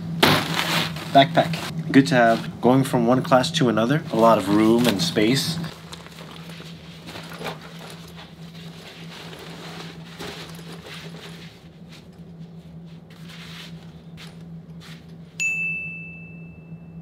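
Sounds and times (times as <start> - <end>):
steady low hum: 0.0 - 17.0
backpack rustling: 0.2 - 2.5, 4.1 - 12.2
bright high ding: 15.4 - 17.0.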